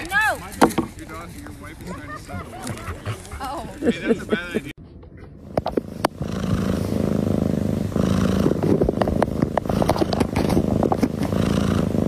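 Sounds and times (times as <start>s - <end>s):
cat purring: 5.5s - 12.0s.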